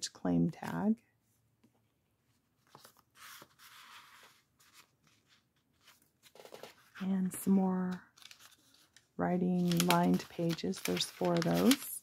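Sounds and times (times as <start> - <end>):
paper rustling and sliding: 2.6 - 7.0, 9.6 - 12.0.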